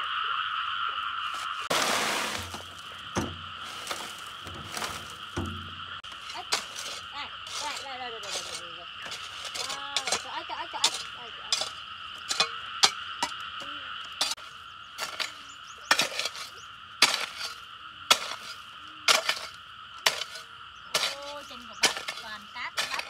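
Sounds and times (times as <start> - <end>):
frogs or insects calling: 0.0 - 23.0
sharp knocks: 2.2 - 6.6.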